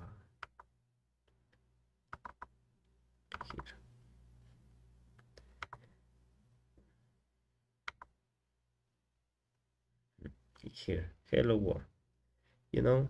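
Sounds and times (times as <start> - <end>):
faint low hum: 0.0 - 13.0
computer mouse clicks: 0.4 - 0.7, 2.1 - 2.5, 5.2 - 5.9, 7.8 - 8.1.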